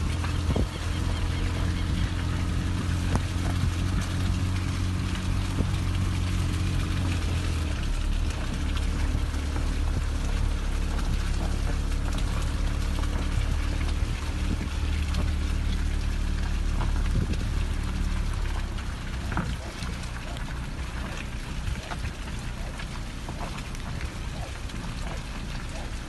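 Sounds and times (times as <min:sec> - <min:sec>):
motor humming: 0:00.0 - 0:26.0.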